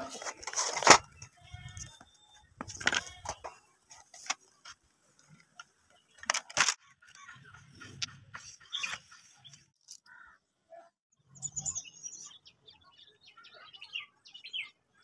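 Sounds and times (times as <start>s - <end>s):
painting supplies clicking and rattling: 0.0s - 7.2s.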